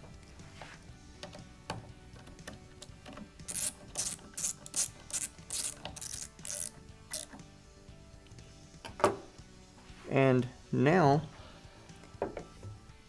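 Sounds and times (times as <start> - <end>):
screwdriver clicking: 2.4 - 7.4.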